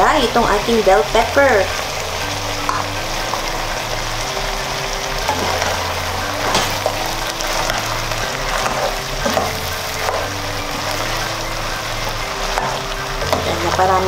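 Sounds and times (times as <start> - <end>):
background music with bass line: 0.0 - 14.0
stew simmering with sizzle: 0.0 - 14.0.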